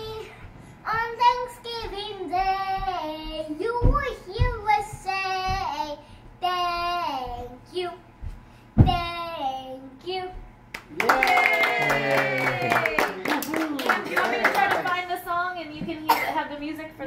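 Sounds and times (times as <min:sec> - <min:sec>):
low thumps: 0:00.4 - 0:05.8, 0:06.4 - 0:09.3.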